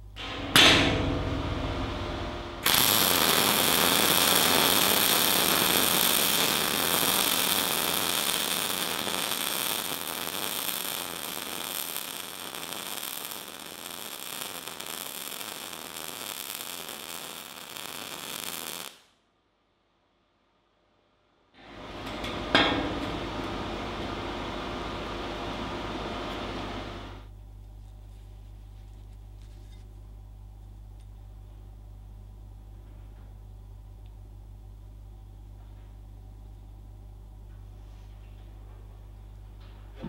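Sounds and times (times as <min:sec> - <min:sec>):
arc welding crackle: 0:00.0 - 0:19.2, 0:21.9 - 0:27.3.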